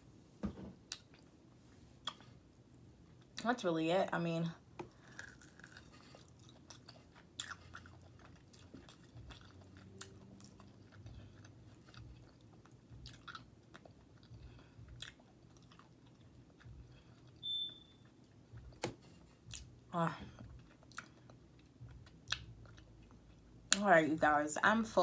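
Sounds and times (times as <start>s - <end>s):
chewing: 4.9s - 17.4s, 20.4s - 23.5s.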